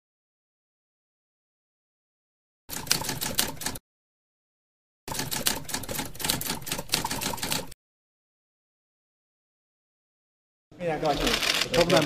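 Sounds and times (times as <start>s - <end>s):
typewriter key clatter: 11.1s - 12.0s.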